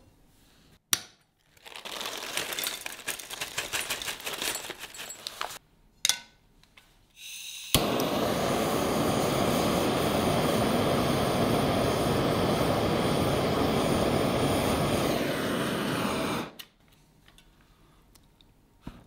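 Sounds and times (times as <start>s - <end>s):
blowtorch flame hissing: 7.6s - 16.6s.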